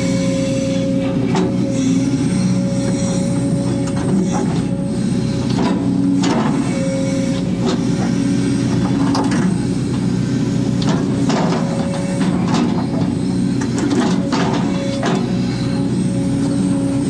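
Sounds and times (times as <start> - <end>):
excavator diesel engine running: 0.0 - 17.0
high whine: 0.0 - 17.0.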